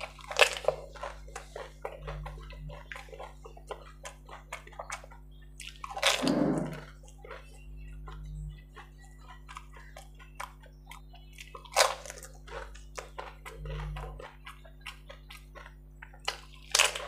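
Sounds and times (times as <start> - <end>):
crisp puris crunching: 0.0 - 17.0
wet slurping: 6.2 - 6.9.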